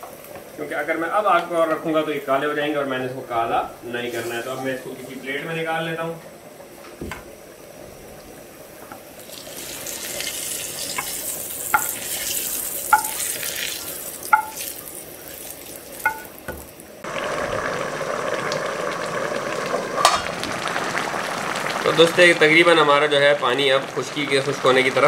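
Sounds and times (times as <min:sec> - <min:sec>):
pot boiling and bubbling: 0:00.0 - 0:25.0
oil sizzling in frying pan: 0:03.9 - 0:25.0
metal spoon knocking on pan: 0:11.7 - 0:12.0, 0:12.9 - 0:13.2, 0:14.3 - 0:14.6, 0:16.0 - 0:16.7.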